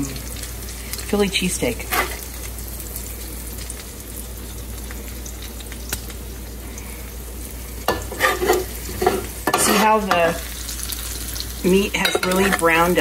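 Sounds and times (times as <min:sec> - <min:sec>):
meat sizzling in a frying pan: 0:00.0 - 0:13.0
spatula knocking and scraping: 0:07.9 - 0:10.2.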